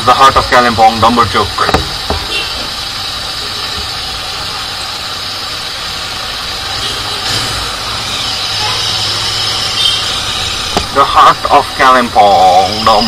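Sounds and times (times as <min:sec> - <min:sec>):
motorcycle engine idling: 0:01.5 - 0:11.4.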